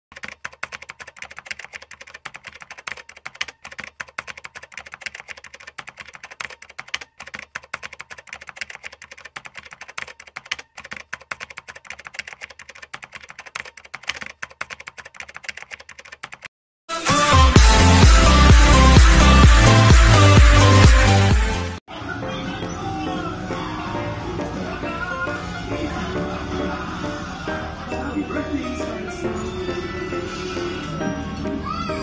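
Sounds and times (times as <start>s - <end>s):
keyboard typing clicks: 0.1s - 16.5s.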